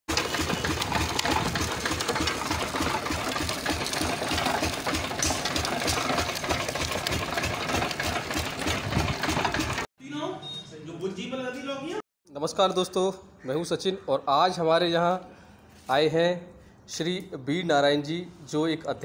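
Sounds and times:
cane crusher mechanical clatter: 0.1 - 9.9.

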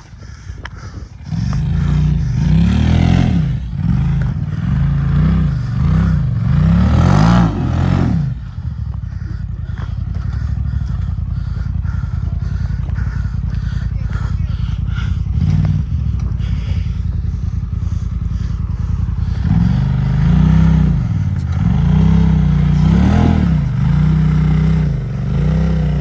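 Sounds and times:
off-road vehicle engine revving: 0.0 - 26.0.

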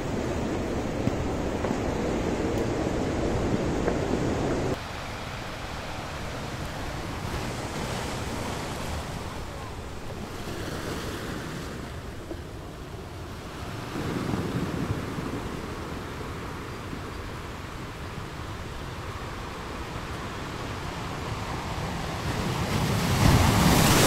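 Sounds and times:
wind on microphone: 0.0 - 4.8
sea waves breaking: 0.0 - 24.0.

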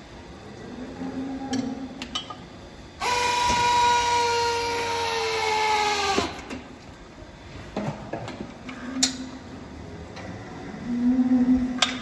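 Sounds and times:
hydraulic pump whine: 3.0 - 6.6.

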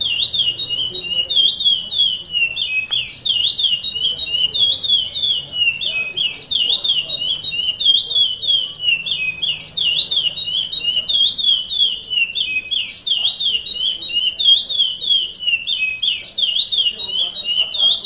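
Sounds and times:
finch singing high notes: 0.0 - 18.0.

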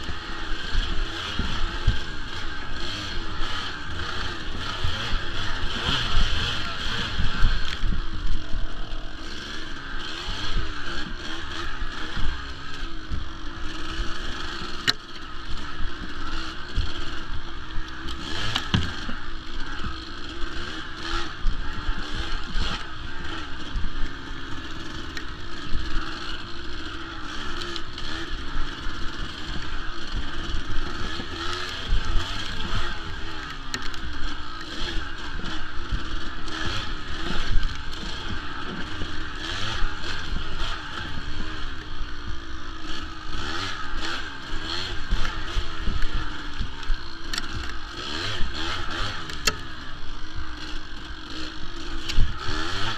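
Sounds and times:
dirt bike engine revving: 0.0 - 52.9.

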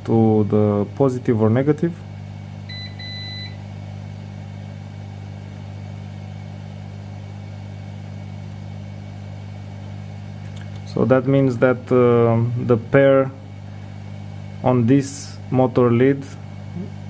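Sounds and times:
steady low hum: 0.0 - 17.0
multimeter short high beeps: 2.7 - 3.6.

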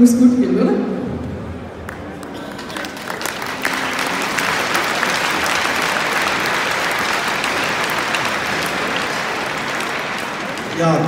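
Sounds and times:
large crowd applauding: 1.9 - 11.0.

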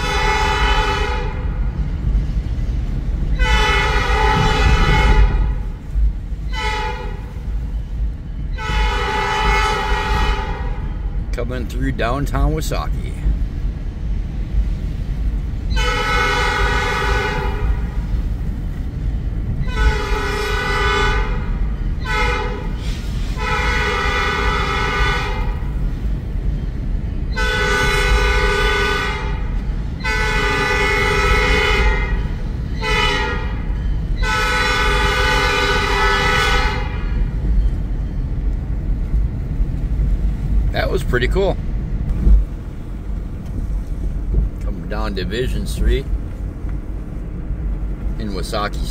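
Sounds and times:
locomotive air horn: 0.0 - 1.8, 3.3 - 5.8, 6.4 - 7.5, 8.5 - 11.2, 15.7 - 18.2, 19.6 - 25.8, 27.3 - 37.4
low rumble: 1.3 - 16.0, 36.8 - 48.9.

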